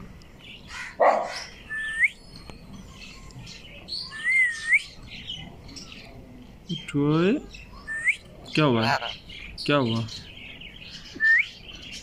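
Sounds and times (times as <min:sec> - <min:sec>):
parakeet whistling: 0:04.0 - 0:05.0
parakeet squawking: 0:08.8 - 0:09.3.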